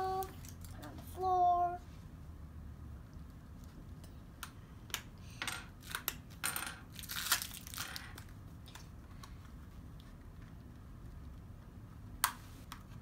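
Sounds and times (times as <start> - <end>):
plastic wrapping crackling: 6.9 - 8.2.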